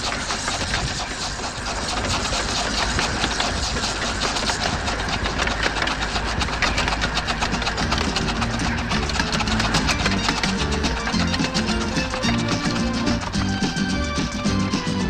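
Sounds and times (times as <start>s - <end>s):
model steam engine clattering: 0.0s - 15.0s
music: 7.3s - 15.0s.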